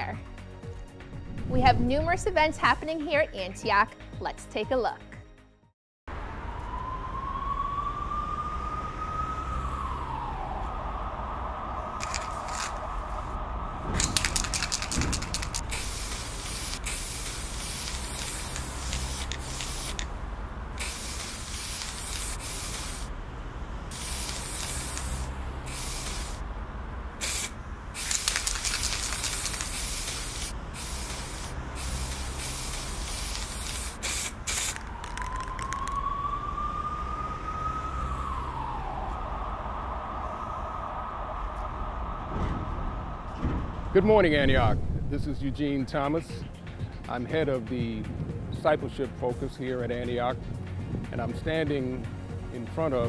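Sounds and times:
low pulsing rumble: 1.0s - 3.1s, 38.3s - 47.0s
spray paint can hissing: 12.0s - 12.8s, 14.0s - 20.1s, 20.8s - 23.1s, 23.9s - 26.4s, 27.2s - 36.0s.

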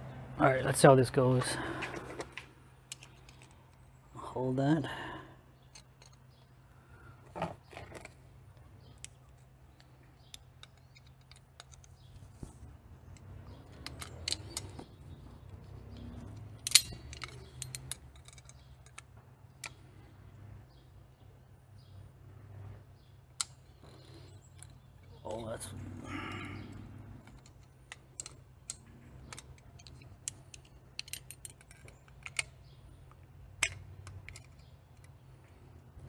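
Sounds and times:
pliers clicking and clinking: 13.1s - 14.9s, 15.9s - 19.8s, 27.2s - 35.2s.

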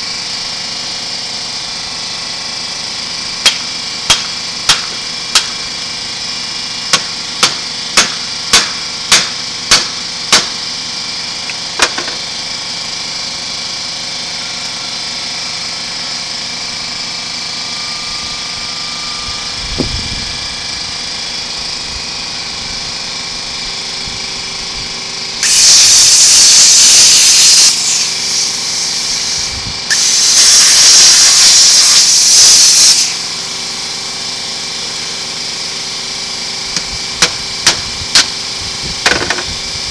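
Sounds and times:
chop saw cutting steel: 0.0s - 39.9s
steady background hum: 1.5s - 12.5s, 15.8s - 33.6s, 35.7s - 39.9s
sharp metal strikes: 6.9s - 10.6s.

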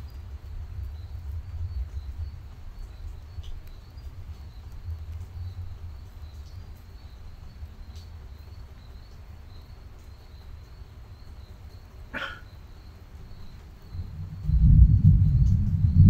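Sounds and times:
steady low rumble: 0.0s - 8.5s, 13.4s - 16.0s
faint insect trill: 0.0s - 16.0s
distant dog barking: 12.1s - 12.4s.

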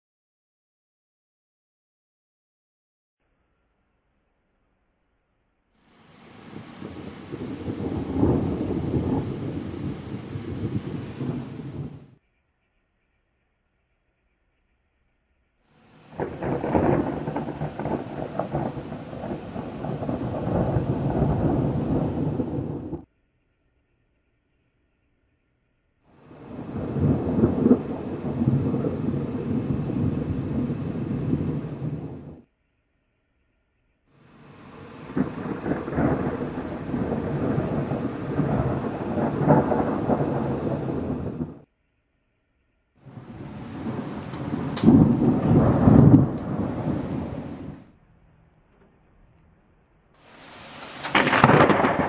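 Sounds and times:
rolling thunder: 6.0s - 12.2s, 16.0s - 23.1s, 26.2s - 32.5s, 34.3s - 41.7s, 43.1s - 47.9s, 50.3s - 52.0s.

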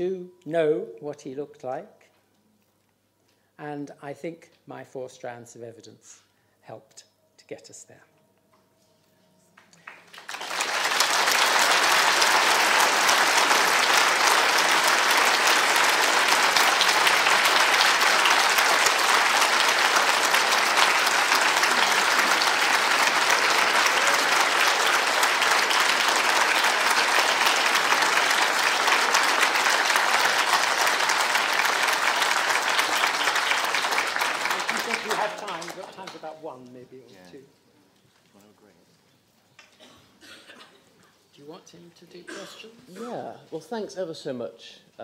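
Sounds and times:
large audience applauding: 9.6s - 36.4s.

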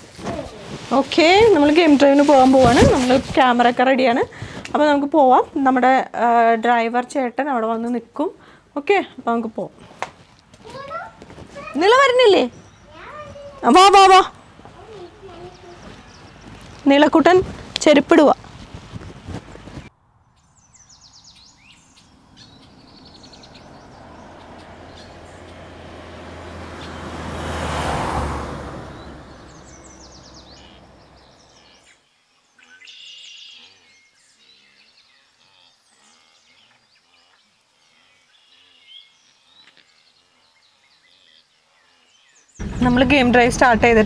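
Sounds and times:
birds chirping: 0.9s - 44.0s
vehicle driving on dirt track: 21.7s - 31.8s, 42.6s - 44.0s.

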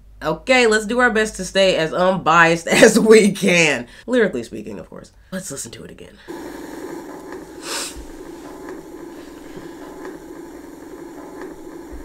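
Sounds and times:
hiss burst: 6.3s - 12.0s
low hum: 6.3s - 12.0s.

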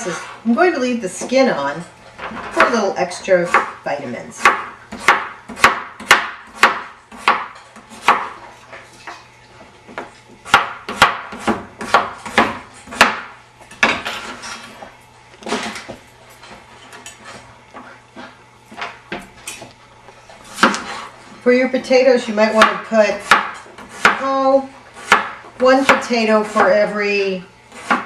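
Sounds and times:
knife slicing potatoes: 21.9s - 27.0s, 27.7s - 28.0s.

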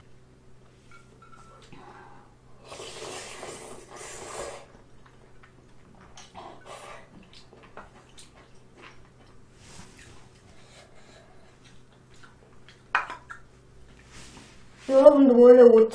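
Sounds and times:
person slurping noodles: 2.6s - 4.7s.

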